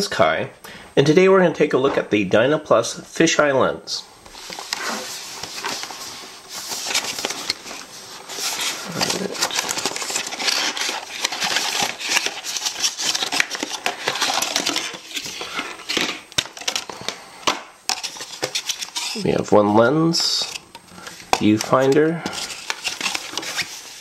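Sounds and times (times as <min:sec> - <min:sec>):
plastic packaging crinkling: 0:04.4 - 0:19.5, 0:20.2 - 0:24.0.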